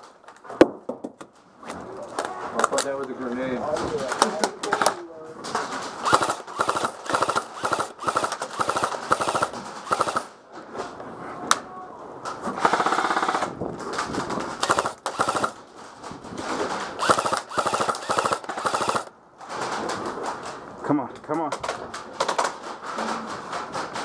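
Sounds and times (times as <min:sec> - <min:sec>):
airsoft rifles firing bursts: 0:06.0 - 0:10.4, 0:12.6 - 0:13.5, 0:14.6 - 0:15.6, 0:17.0 - 0:19.1.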